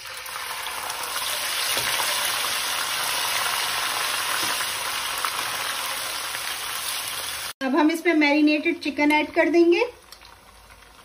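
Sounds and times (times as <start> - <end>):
food frying hiss: 0.0 - 7.6.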